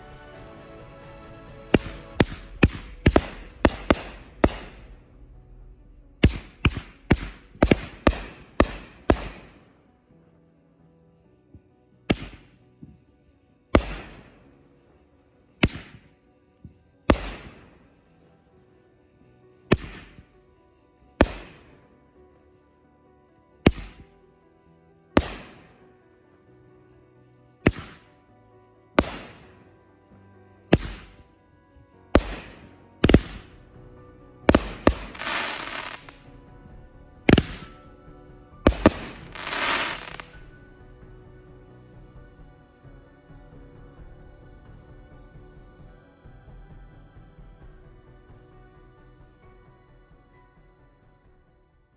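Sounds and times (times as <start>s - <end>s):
faint background music: 0.0s - 51.9s
firework bangs: 1.7s - 5.3s, 6.2s - 9.6s, 12.1s - 12.5s, 13.8s - 14.4s, 15.6s - 16.0s, 17.1s - 17.9s, 19.7s - 20.2s, 21.2s - 21.8s, 25.2s - 25.7s, 27.7s - 28.0s, 29.0s - 29.5s, 30.7s - 31.2s, 32.2s - 33.6s, 34.5s - 36.2s, 37.3s - 37.8s, 38.6s - 40.4s.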